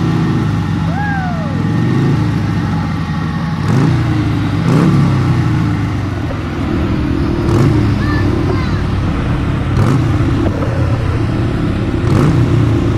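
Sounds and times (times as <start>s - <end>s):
atv engine running: 0.0s - 12.9s.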